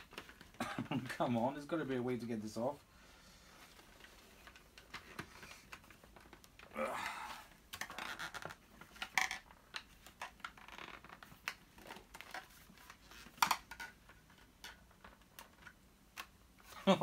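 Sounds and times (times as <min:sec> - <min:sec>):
plastic clicks and rattles: 0:07.7 - 0:16.4.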